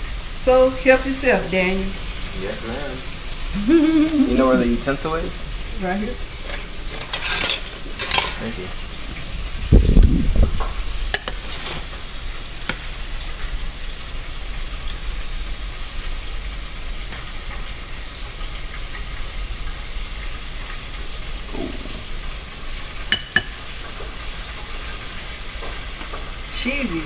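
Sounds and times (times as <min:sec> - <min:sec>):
steady hiss: 0:00.0 - 0:27.0
spoon clinking against bowl: 0:23.1 - 0:23.6.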